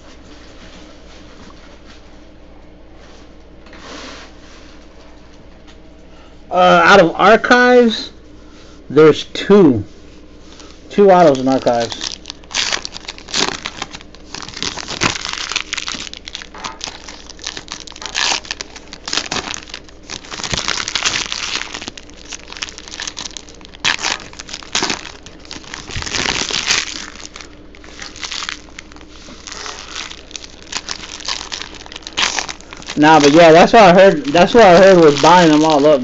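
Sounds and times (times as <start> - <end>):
cards rustling: 10.6 - 36.0
wrapper crinkling: 11.1 - 36.0.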